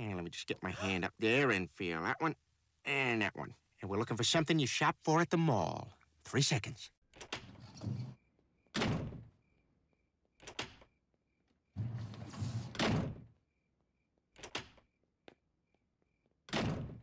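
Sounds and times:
cricket chirps: 7.9s - 11.8s, 13.3s - 16.4s
cartoon knocks and bangs: 8.8s - 9.3s, 16.5s - 17.0s
door slamming: 8.8s - 9.3s, 11.8s - 13.3s, 16.5s - 17.0s.

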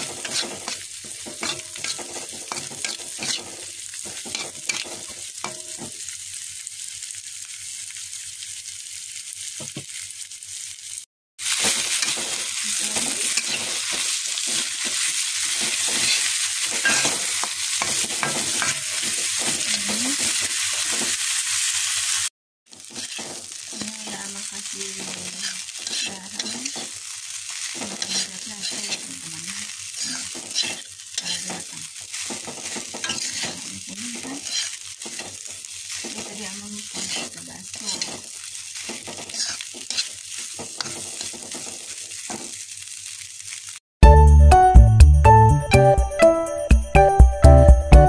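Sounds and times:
metal spatula scraping pan: 0.0s - 5.9s, 13.0s - 21.2s, 22.8s - 24.2s, 25.0s - 27.0s, 27.7s - 29.2s, 29.9s - 42.5s
vegetables sizzling in oil: 0.0s - 43.8s.

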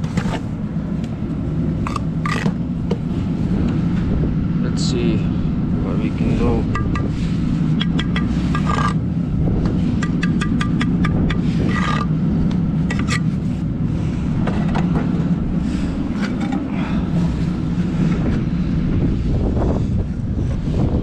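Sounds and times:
steady low rumble: 0.0s - 21.0s
trowel tapping and scraping brick: 1.9s - 2.6s, 6.7s - 7.1s, 7.8s - 9.0s, 10.0s - 12.1s, 12.9s - 13.2s.

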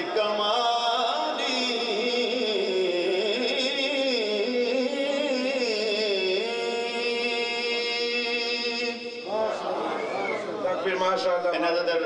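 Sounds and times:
man singing unaccompanied: 0.0s - 9.4s.

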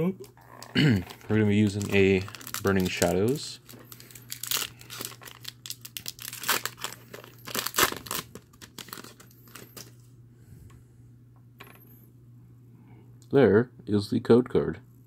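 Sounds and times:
foil pack tearing and crinkling: 1.0s - 9.9s.

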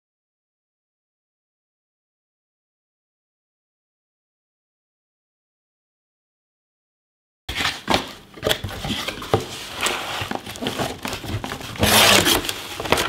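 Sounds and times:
cardboard box handling: 7.5s - 13.0s
cardboard crinkling: 7.5s - 13.0s.

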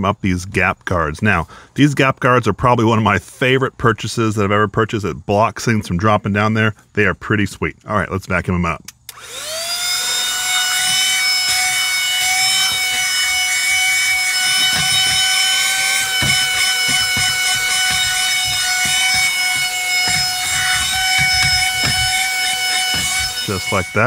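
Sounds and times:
vacuum cleaner high whine: 9.1s - 24.0s.

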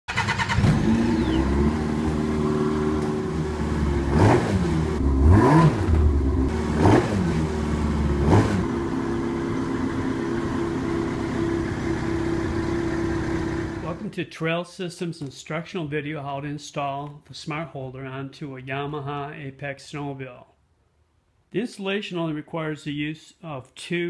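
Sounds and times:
snowmobile engine idling and revving: 0.5s - 14.0s.

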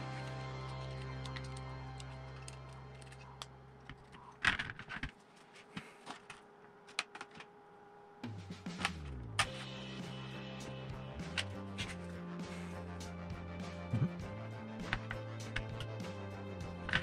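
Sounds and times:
background music: 0.0s - 3.9s, 8.2s - 17.0s
metal parts clattering on plastic tray: 3.9s - 5.2s.

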